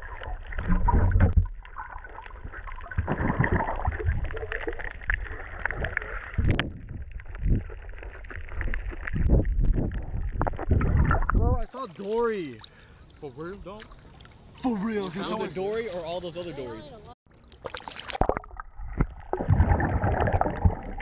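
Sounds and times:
muffled underwater water sloshing: 0.0 - 11.7, 12.3 - 15.1, 17.4 - 21.0.

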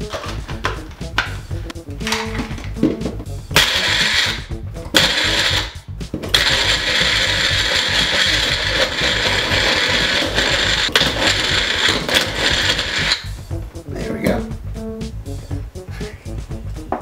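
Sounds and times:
blender motor chopping fruit: 3.6 - 13.4.

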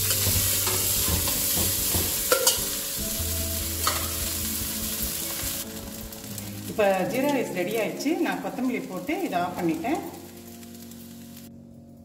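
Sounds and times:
spoon scraping pan: 0.0 - 2.8
frying sizzle: 0.0 - 11.7
spoon knocking against pan: 0.1 - 2.7, 3.8 - 4.2.

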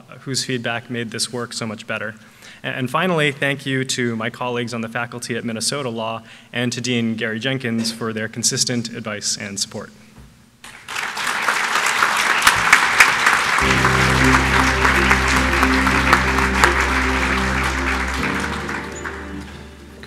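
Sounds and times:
audience applauding: 10.6 - 20.0
sustained music: 13.6 - 20.0.

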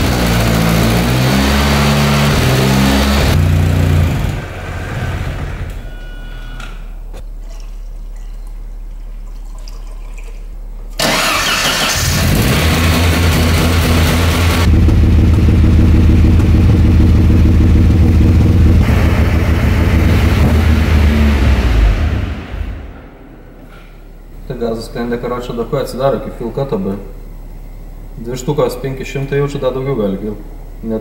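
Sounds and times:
car engine starting and idling: 0.0 - 7.1, 11.0 - 26.0.

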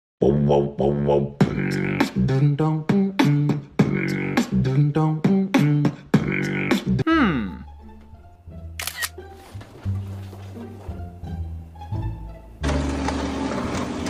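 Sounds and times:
beatboxing: 0.2 - 7.6.

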